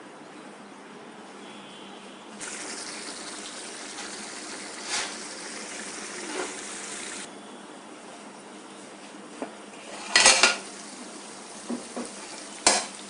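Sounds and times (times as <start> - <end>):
pot boiling with bubbling hiss: 2.4 - 7.3, 9.7 - 13.0
loud pops from boiling pot: 11.6 - 13.0.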